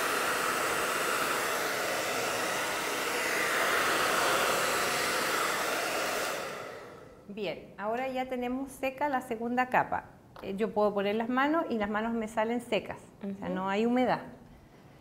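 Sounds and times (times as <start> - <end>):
hair dryer blowing: 0.0 - 7.2.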